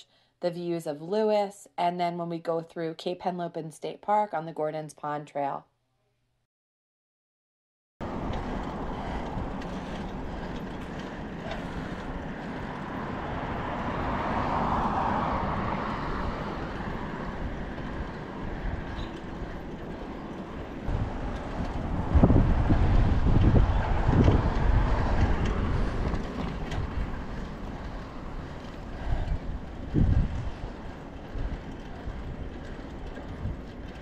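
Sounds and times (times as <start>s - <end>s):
bicycle rolling on pavement: 8.0s - 34.0s
wind on microphone: 8.0s - 34.0s.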